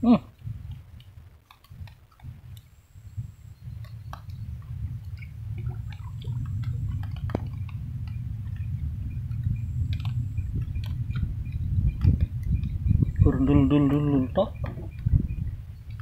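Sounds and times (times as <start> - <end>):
faint ticks and clicks: 0.3 - 16.0
low rumble: 2.2 - 16.0
water drips: 3.7 - 15.2.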